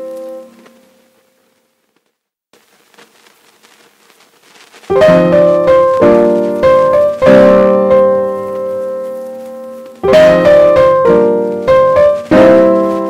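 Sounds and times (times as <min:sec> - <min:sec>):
piano chords: 0:00.0 - 0:01.2, 0:04.9 - 0:13.0.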